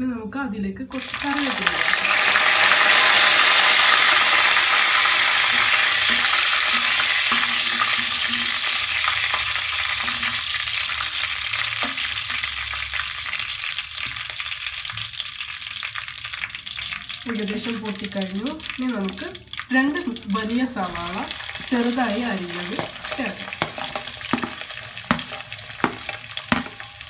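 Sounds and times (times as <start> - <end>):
leaves sizzling and spluttering in oil: 0.9 - 27.0
metal spoon stirring: 20.9 - 27.0.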